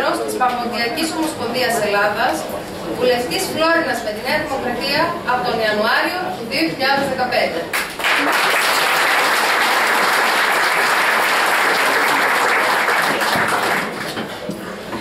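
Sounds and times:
audience applauding: 7.7s - 14.3s.

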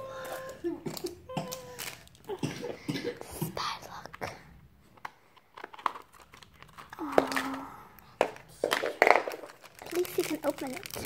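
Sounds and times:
plastic wrapper crinkling: 1.5s - 2.4s, 5.5s - 11.0s.

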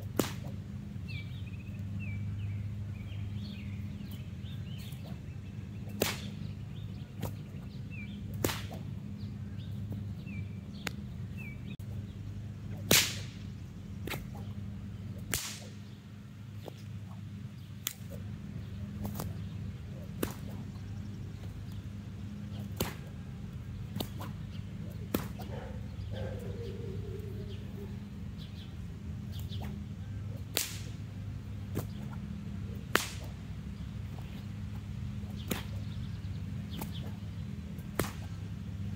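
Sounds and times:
whip cracking: 0.0s - 0.6s, 4.8s - 5.2s, 5.8s - 6.5s, 7.2s - 7.5s, 8.3s - 9.0s, 12.7s - 14.5s, 15.2s - 16.0s, 17.8s - 18.3s, 19.0s - 19.4s, 20.0s - 21.5s, 22.5s - 23.2s, 23.8s - 25.6s, 29.3s - 31.1s, 31.7s - 33.4s, 35.2s - 36.0s, 36.7s - 37.2s, 37.8s - 38.5s
steady low hum: 0.0s - 38.9s.

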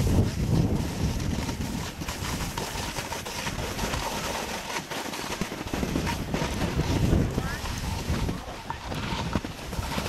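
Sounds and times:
snowboard scraping over snow: 0.0s - 10.0s.

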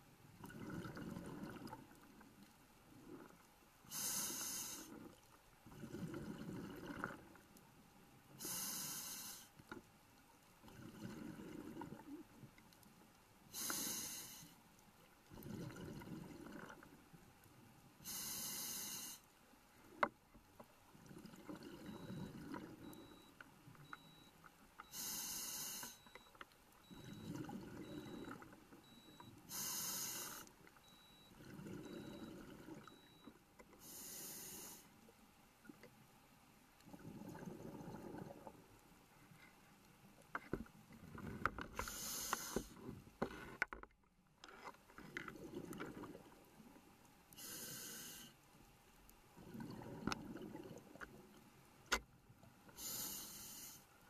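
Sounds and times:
exhaled bubbles rumbling: 0.4s - 1.9s, 5.7s - 7.4s, 15.3s - 16.9s, 36.8s - 38.6s, 49.4s - 51.3s
hissing regulator inhalation: 13.6s - 14.5s, 24.9s - 26.0s, 29.5s - 30.5s, 41.8s - 42.7s, 47.4s - 48.3s, 52.8s - 53.8s.

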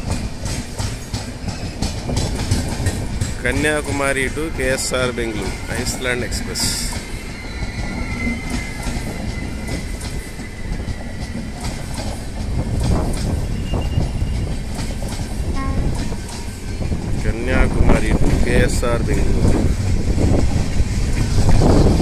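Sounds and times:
wheels clicking over rail joints: 0.0s - 4.6s
train coaches rumbling past: 0.0s - 22.0s.

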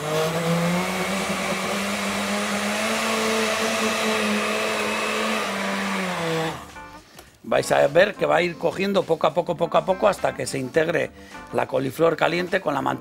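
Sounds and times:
blender running: 0.0s - 6.8s.

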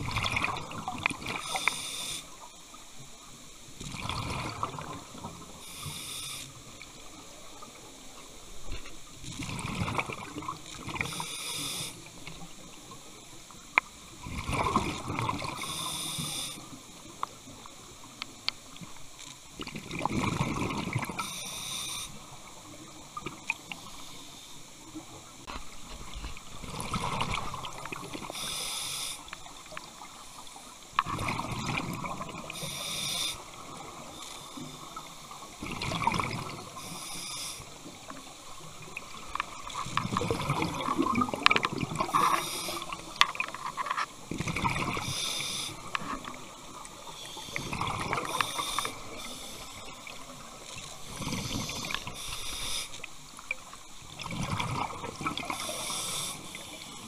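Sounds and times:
diver breathing through regulator: 11.0s - 12.1s, 15.6s - 16.7s, 28.3s - 29.3s, 32.6s - 33.5s, 36.8s - 37.8s, 42.1s - 43.1s, 44.9s - 45.9s, 47.2s - 49.8s, 51.0s - 53.1s, 55.4s - 57.0s.

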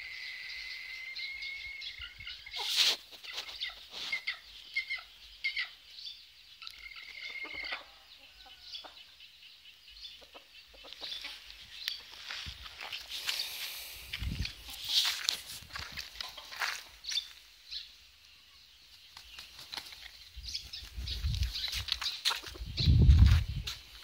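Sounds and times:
high insect drone: 0.0s - 1.9s
chickens clucking: 2.0s - 5.8s, 6.6s - 9.2s, 10.0s - 17.4s, 20.9s - 23.8s.

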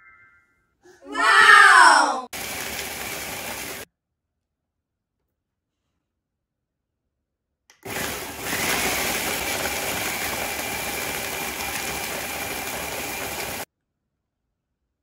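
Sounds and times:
food processor grinding: 2.3s - 3.8s, 7.7s - 13.7s.

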